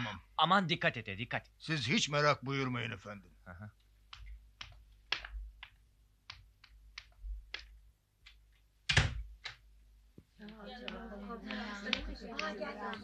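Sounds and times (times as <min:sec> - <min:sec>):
sharp taps or knocks: 0:04.0 - 0:09.6.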